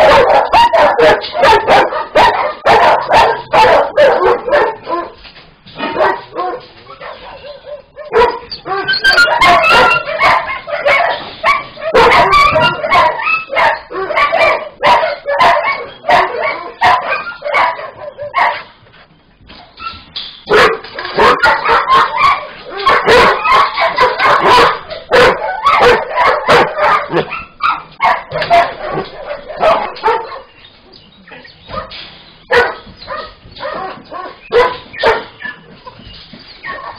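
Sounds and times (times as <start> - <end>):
many dogs barking: 0.0 - 18.8, 20.5 - 36.9.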